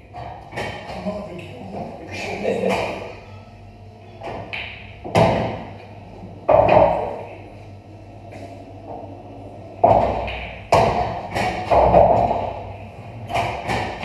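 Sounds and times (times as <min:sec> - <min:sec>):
pool balls clacking: 0:00.1 - 0:01.1, 0:06.4 - 0:07.3, 0:09.8 - 0:14.0.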